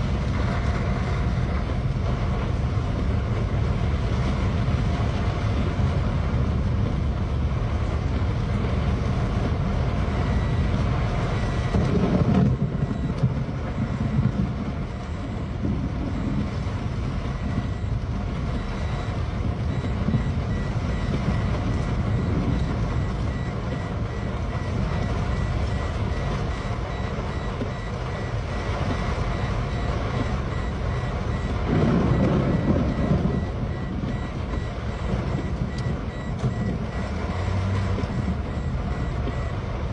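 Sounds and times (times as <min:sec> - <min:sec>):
car driving noise: 0:00.0 - 0:39.9
heavy rain: 0:00.0 - 0:39.9
low rumbles: 0:00.0 - 0:39.9
seatbelt warning chime beeping: 0:19.7 - 0:39.6.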